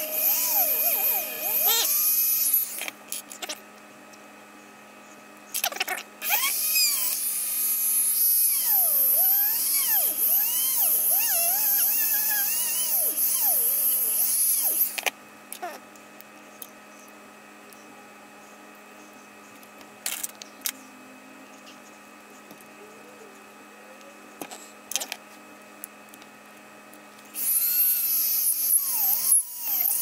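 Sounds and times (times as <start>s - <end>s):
rotary tool grinding whine: 0.0s - 3.6s, 6.2s - 15.2s, 27.3s - 30.0s.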